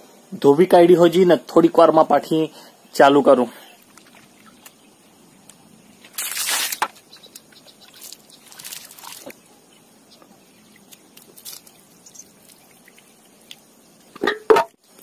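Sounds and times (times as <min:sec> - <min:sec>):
water splashing in a basin: 0:03.8 - 0:04.8, 0:06.1 - 0:09.5, 0:10.6 - 0:14.4.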